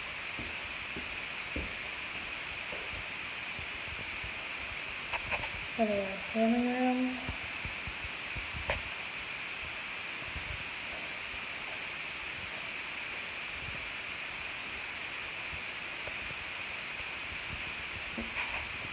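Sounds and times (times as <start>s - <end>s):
recording hiss: 0.0s - 18.9s
soft footstep thumps: 0.3s - 3.1s, 18.2s - 18.7s.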